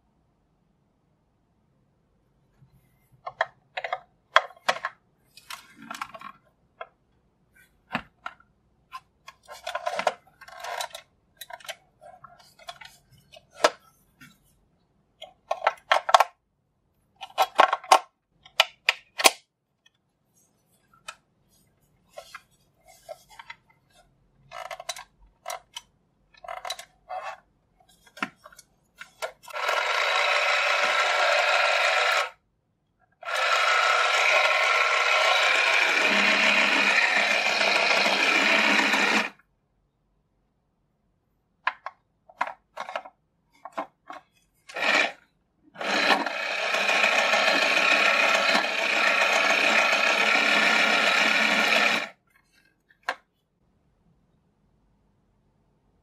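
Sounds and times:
plastic clicks and clatters: 3.2s - 7.0s, 7.9s - 13.8s, 15.2s - 16.4s, 17.2s - 20.0s, 22.2s - 29.8s, 41.6s - 45.2s
small motor whirring: 29.5s - 32.4s, 33.2s - 39.4s, 44.7s - 45.2s, 45.8s - 52.1s.

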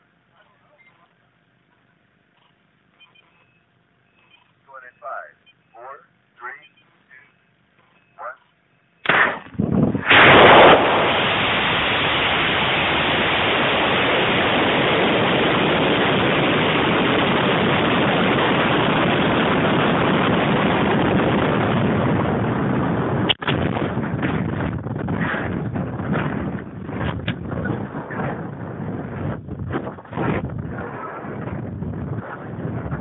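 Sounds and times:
sharp crack: 9.0s - 19.7s, 23.2s - 28.4s
rocket motor rushing roar: 9.0s - 33.0s.

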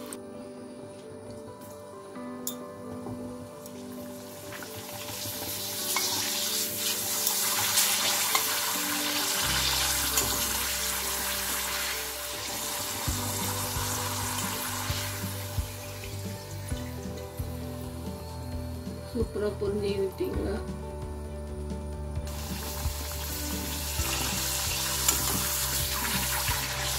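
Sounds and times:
soft background music: 0.0s - 26.9s
papad sizzling in hot oil: 3.7s - 17.5s, 22.3s - 26.9s.

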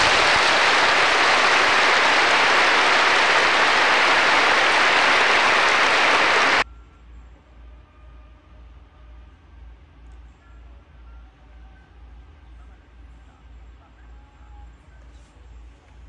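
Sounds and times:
audience applauding: 0.0s - 6.6s
faint low hum: 0.0s - 16.0s.

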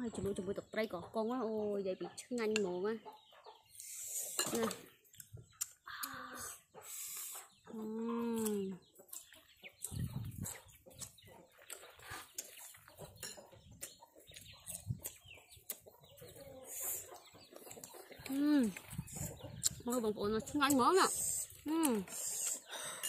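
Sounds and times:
chickens clucking: 0.0s - 23.0s
chewing crunchy food: 8.4s - 22.8s.

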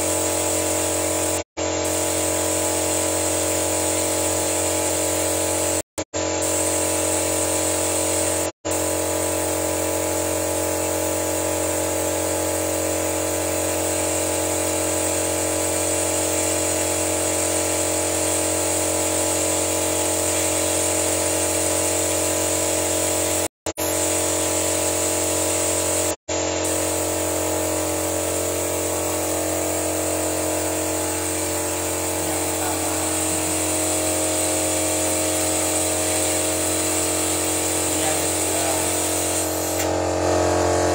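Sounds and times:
high hiss from engine bay: 26.7s - 40.0s
machine hum: 37.9s - 40.9s.

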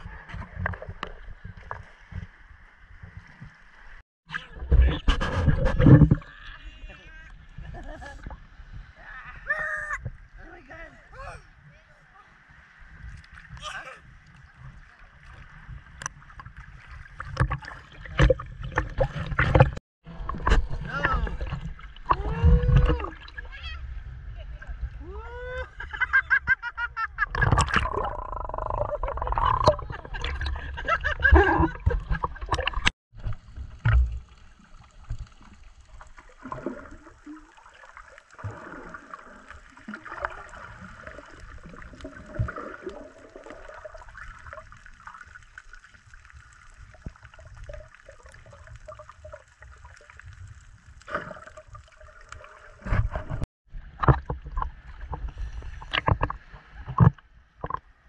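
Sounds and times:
water sloshing and splashing: 0.0s - 6.6s, 12.3s - 25.1s, 27.2s - 58.0s
underwater gurgling: 12.5s - 25.2s, 27.0s - 58.0s.

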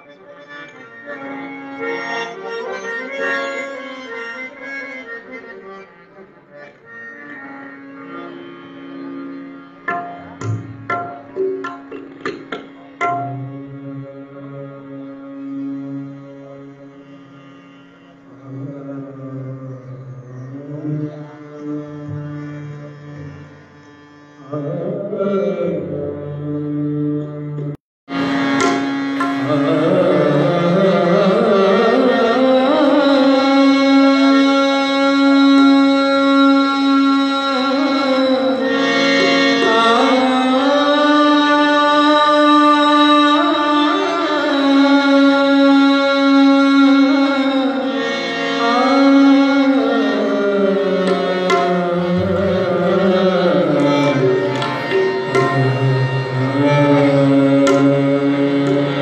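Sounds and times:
tabla playing: 7.3s - 14.4s, 28.1s - 33.5s, 48.5s - 59.0s.

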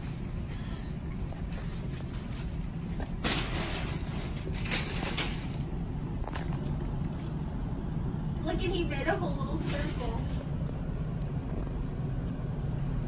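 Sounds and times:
plastic air pillows crinkling: 0.0s - 7.6s
steady low hum: 0.0s - 13.0s.

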